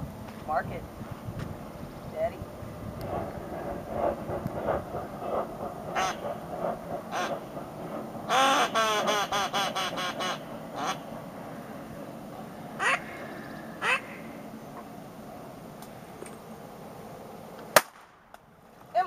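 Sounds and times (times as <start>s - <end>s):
duck call quacks: 6.0s - 6.2s, 7.1s - 7.4s, 8.3s - 11.1s, 12.8s - 13.1s, 13.8s - 14.2s.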